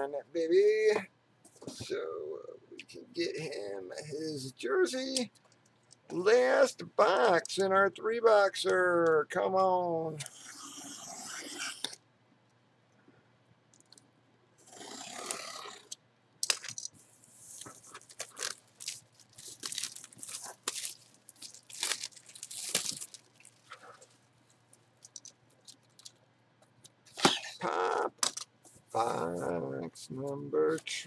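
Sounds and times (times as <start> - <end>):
scraping stroke on cardboard: 10.3 - 11.9, 14.6 - 15.9
packaging rustle: 16.4 - 26.2
cardboard crackling and tearing: 17.6 - 23.7.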